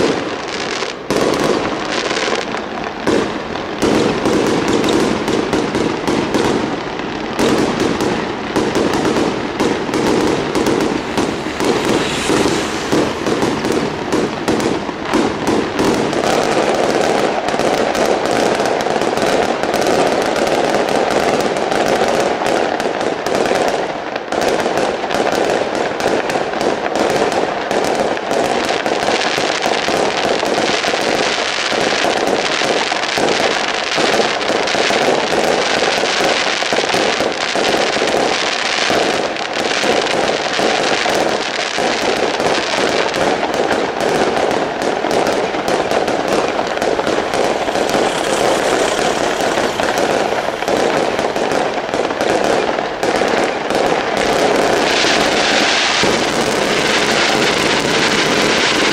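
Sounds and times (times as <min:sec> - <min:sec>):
fireworks crackling: 0:00.0 - 0:58.9.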